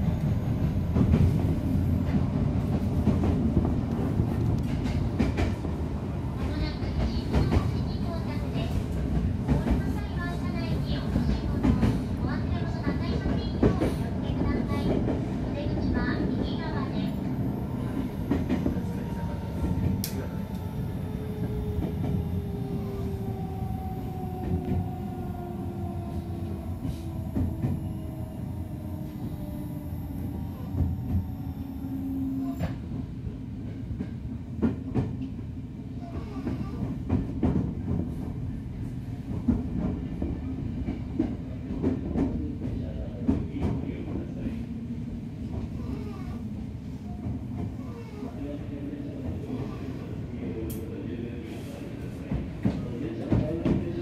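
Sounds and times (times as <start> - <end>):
wheel and rail rumble: 0.0 - 54.0
train inverter whining: 15.5 - 33.1.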